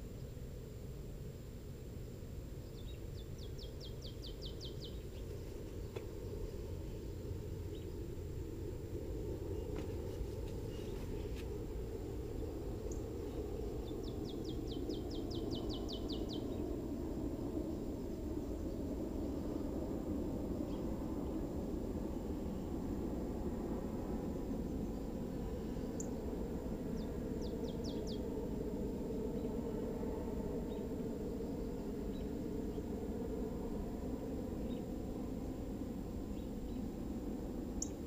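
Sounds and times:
low outdoor rumble: 0:00.0 - 0:38.0
songbird trilling: 0:02.6 - 0:06.1, 0:12.9 - 0:16.6, 0:27.0 - 0:28.2, 0:37.8 - 0:38.0.

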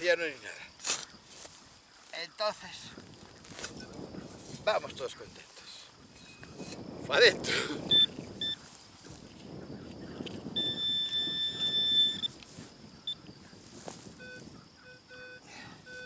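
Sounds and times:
metal detector high steady tone: 0:07.8 - 0:08.7, 0:10.5 - 0:13.5, 0:14.1 - 0:16.0
metal detector short low beeps: 0:07.9 - 0:08.6, 0:10.6 - 0:12.4, 0:14.2 - 0:16.0.

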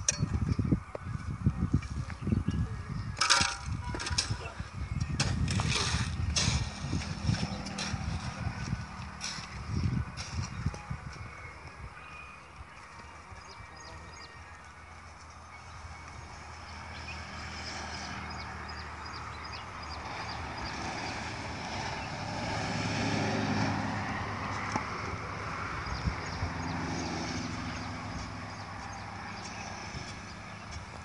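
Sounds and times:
vehicle engine running: 0:06.1 - 0:12.7, 0:13.3 - 0:31.0.

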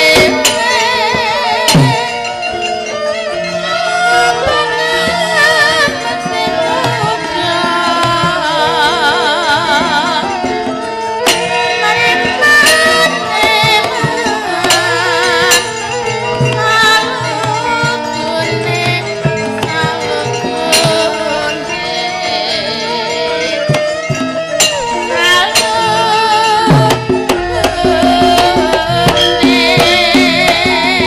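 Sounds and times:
gongs and metallophones: 0:00.0 - 0:31.0
person singing long notes: 0:00.0 - 0:31.0
drum: 0:26.7 - 0:31.0.

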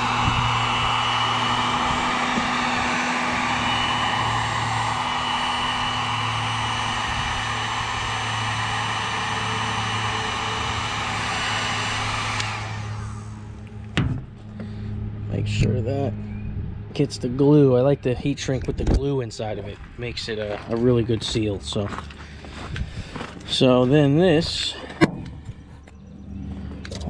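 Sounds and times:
heat gun blowing: 0:00.0 - 0:13.9.

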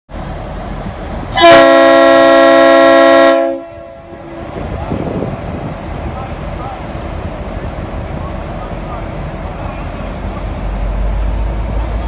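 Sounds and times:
locomotive air horn chord: 0:01.4 - 0:04.0.

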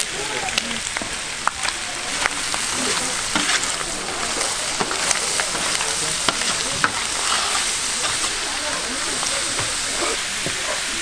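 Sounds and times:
meat sizzling on griddle: 0:00.0 - 0:11.0.

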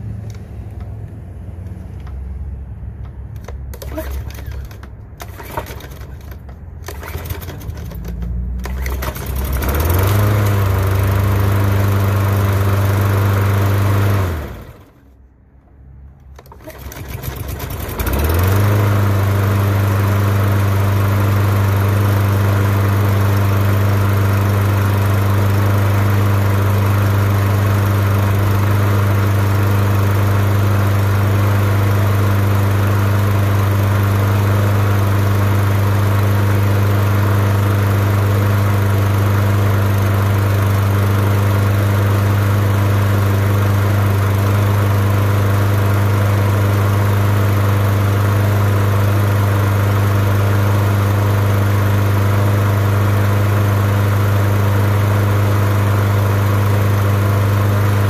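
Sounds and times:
lawn mower engine running: 0:00.0 - 0:15.2, 0:16.2 - 0:58.0.

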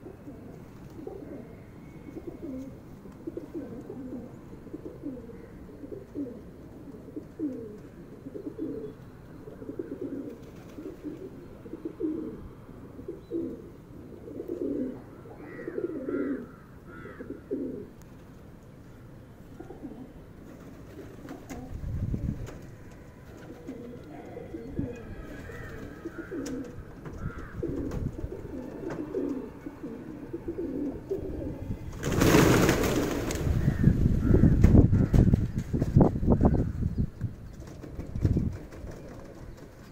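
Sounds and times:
pigeons cooing: 0:00.0 - 0:18.0, 0:18.9 - 0:35.6
pigeon wingbeats clattering: 0:32.0 - 0:33.5, 0:37.5 - 0:39.9.

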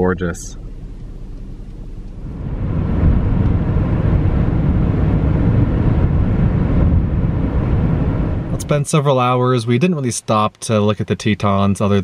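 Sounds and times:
car road and wind noise: 0:00.0 - 0:09.4.

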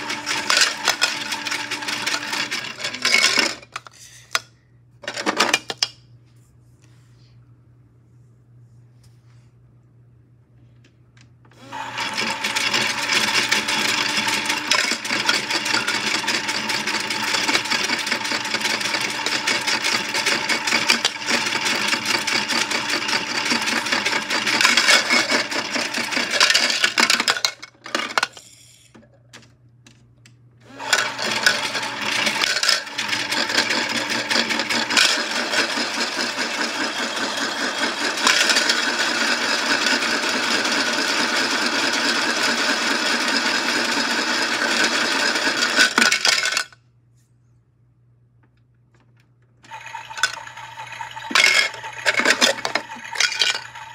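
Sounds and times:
toy washing machine motor whirring: 0:00.0 - 0:03.8, 0:11.5 - 0:29.1, 0:30.6 - 0:46.7, 0:49.6 - 0:53.9.

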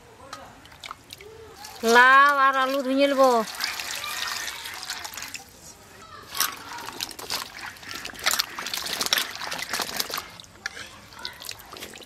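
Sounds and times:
water pouring into metal bowl: 0:00.7 - 0:05.6, 0:06.3 - 0:12.0
hands splashing in water: 0:06.3 - 0:10.6.

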